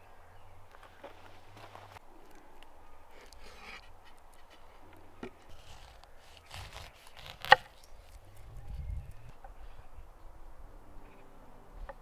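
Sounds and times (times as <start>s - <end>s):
light scraping and handling: 0.7s - 2.4s, 3.0s - 9.5s.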